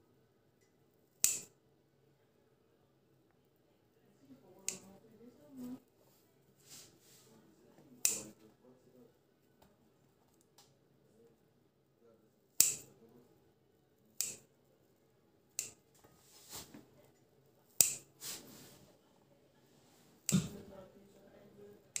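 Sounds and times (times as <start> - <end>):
scissors snipping: 1.2 - 1.5, 4.7 - 4.9, 8.0 - 8.4, 12.6 - 12.9, 14.2 - 14.4, 15.6 - 15.8, 17.8 - 18.1.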